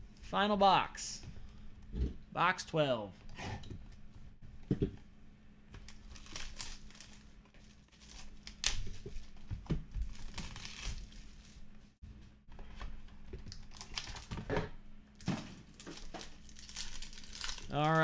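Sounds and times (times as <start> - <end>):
plastic wrapping crinkling and tearing: 5.8 - 9.4, 10.0 - 11.6, 13.4 - 14.4, 15.2 - 18.0.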